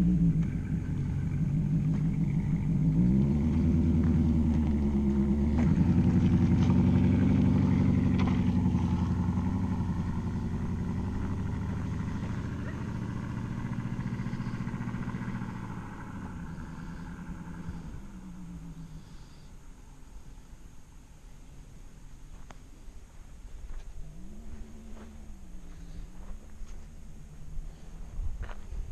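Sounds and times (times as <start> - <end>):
car engine and exhaust pulling away: 0.0 - 28.9.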